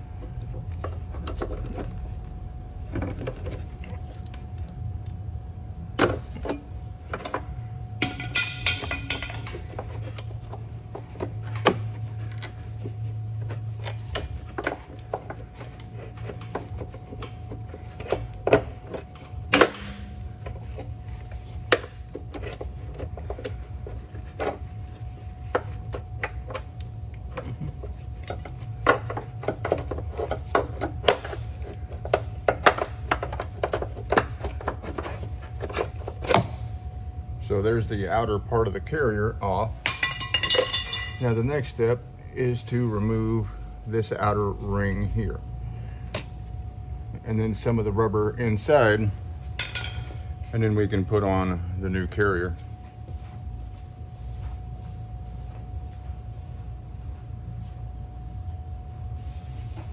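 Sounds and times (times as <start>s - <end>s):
steady low hum: 0.0s - 59.9s
metal tools clicking and knocking: 39.9s - 41.2s
metal ringing: 39.9s - 41.3s.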